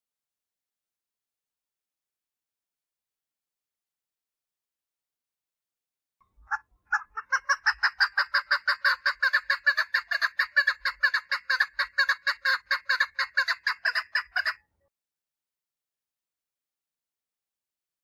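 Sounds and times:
partridge clucking call: 6.5s - 14.6s.

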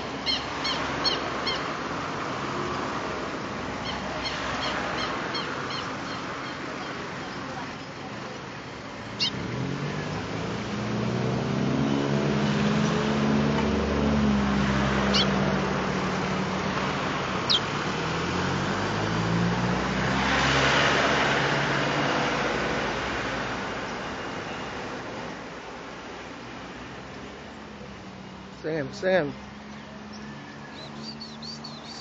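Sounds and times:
bird chirps: 0.2s - 1.7s, 9.2s - 9.4s, 15.1s - 15.4s, 17.5s - 17.7s, 29.7s - 32.0s
vehicle engine passing: 8.9s - 23.9s, 27.7s - 32.0s.

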